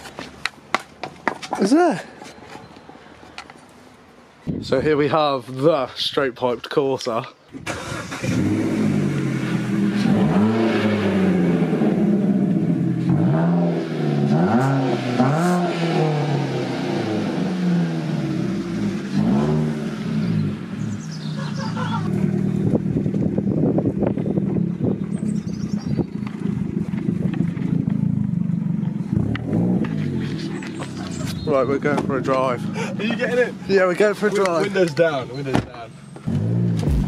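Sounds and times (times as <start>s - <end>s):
car engine revving: 7.7s - 21.2s, 26.3s - 31.3s, 36.2s - 37.0s.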